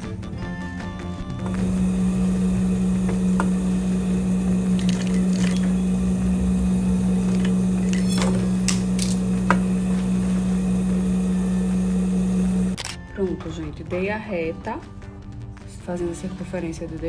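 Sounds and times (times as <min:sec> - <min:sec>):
sewing machine motor humming: 0:01.5 - 0:12.8.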